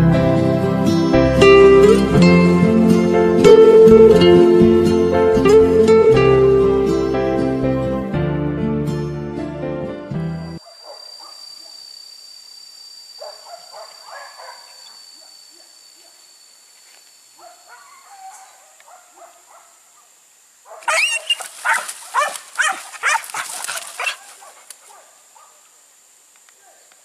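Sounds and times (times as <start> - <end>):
dogs yelping and barking: 10.6 - 11.8, 13.2 - 16.1, 17.4 - 19.7, 20.7 - 25.6.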